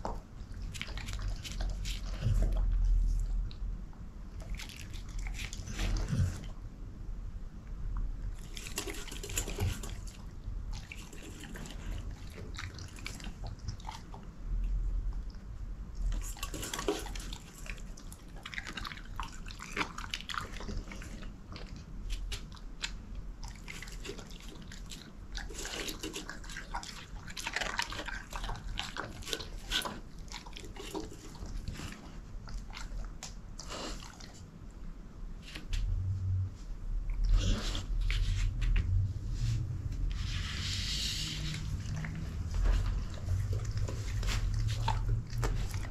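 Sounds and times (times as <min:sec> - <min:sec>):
dog chewing food from steel bowl: 0:08.3 - 0:14.8, 0:16.0 - 0:33.2, 0:41.3 - 0:45.9.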